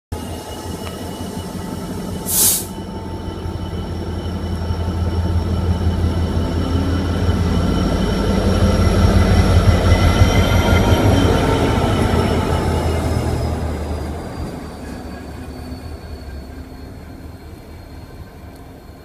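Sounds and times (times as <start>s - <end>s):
diesel locomotive engine passing: 0.1s - 19.0s
loud hiss: 2.2s - 2.8s.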